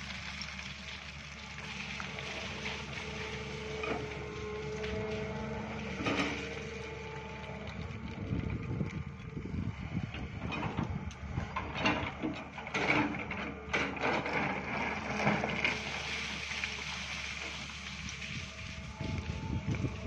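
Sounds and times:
excavator diesel engine running: 0.0 - 20.0
bucket scraping stony soil: 1.6 - 6.9, 14.1 - 18.6.

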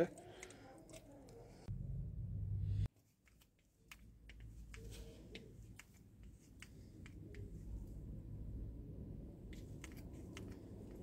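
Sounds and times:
low handling rumble: 1.6 - 2.9.

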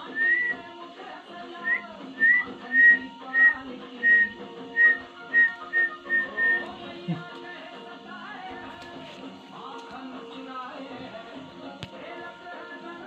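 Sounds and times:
high whistled notes: 0.0 - 0.7, 1.6 - 6.7
background music: 0.0 - 13.0.

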